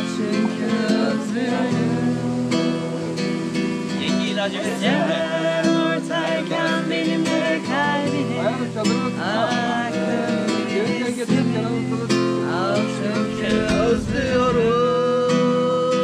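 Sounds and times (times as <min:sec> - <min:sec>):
woman and men singing: 0:00.0 - 0:02.6, 0:04.2 - 0:08.4.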